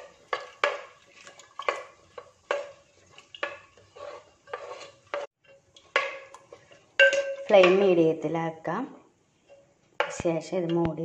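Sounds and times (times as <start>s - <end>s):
metal spoon scraping clay pot: 0.4s - 7.7s.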